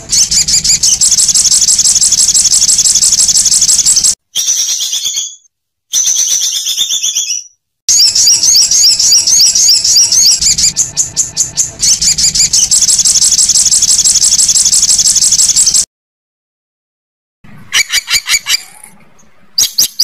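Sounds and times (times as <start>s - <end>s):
songbird singing fast high notes: 0.0s - 15.8s.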